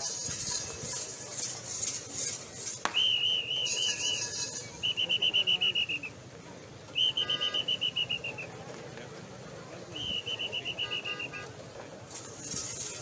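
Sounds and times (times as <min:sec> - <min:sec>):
pea whistle trills: 0:03.0 - 0:06.1, 0:07.0 - 0:08.4.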